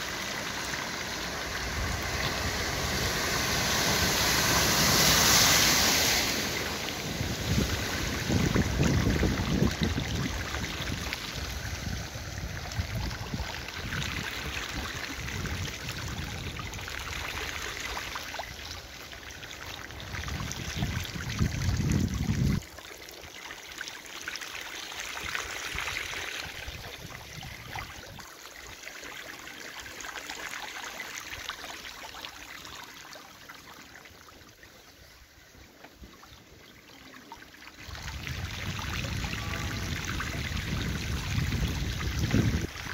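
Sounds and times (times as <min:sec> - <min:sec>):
floodwater rushing and trickling: 0:00.0 - 0:42.9
wind rumble on microphone: 0:06.5 - 0:17.6, 0:19.9 - 0:22.6, 0:26.4 - 0:28.2, 0:37.8 - 0:42.9.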